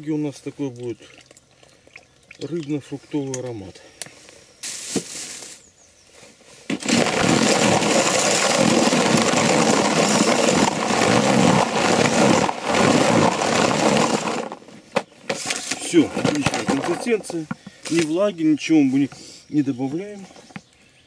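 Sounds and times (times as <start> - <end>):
cordless drill mixing in bucket: 6.7 - 18.2.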